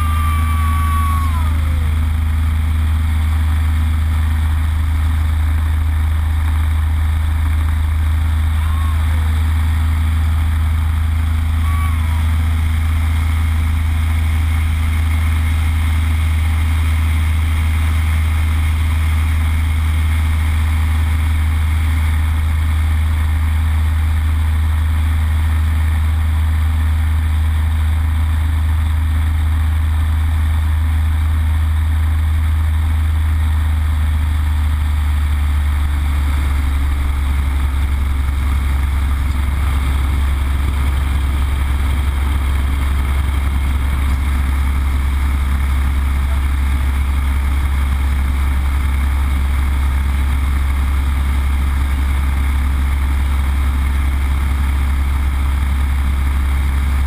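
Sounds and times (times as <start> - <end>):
aircraft engine droning in flight: 0.0 - 57.0.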